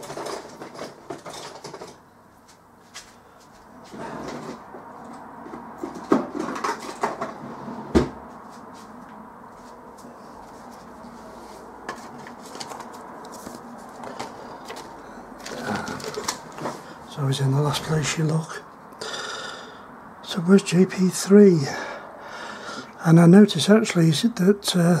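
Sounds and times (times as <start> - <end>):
objects knocking and clattering: 0.0 - 2.0, 5.4 - 8.2, 11.8 - 16.8.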